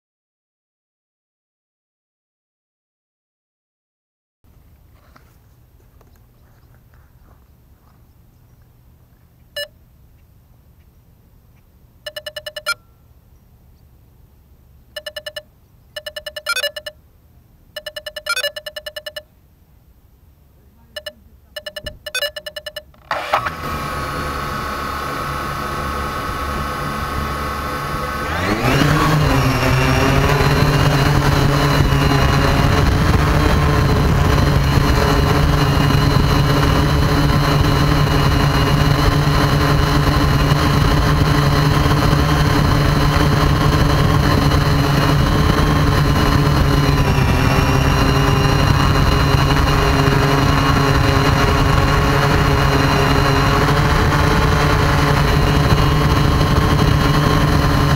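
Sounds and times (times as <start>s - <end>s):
drone motors whining: 12.1s - 12.8s, 15.0s - 15.4s, 16.0s - 17.0s, 17.8s - 19.2s, 21.0s - 57.9s
rapid electronic beeps: 12.1s - 12.9s, 15.0s - 17.0s, 17.8s - 19.3s, 20.9s - 23.0s.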